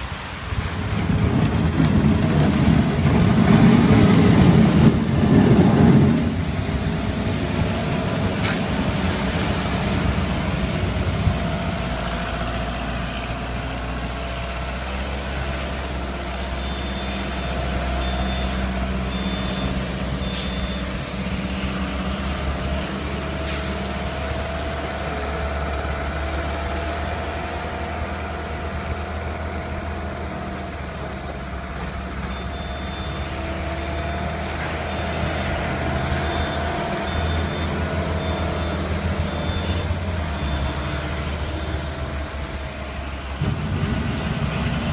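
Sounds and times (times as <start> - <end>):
loader engine running: 0.0 - 44.9
reversing alarm beeping: 16.5 - 21.0, 32.2 - 41.9.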